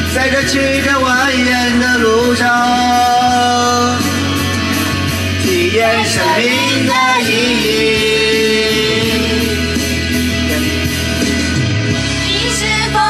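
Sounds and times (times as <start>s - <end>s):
man singing into microphone: 0.0s - 10.0s
music backing track: 0.0s - 13.0s.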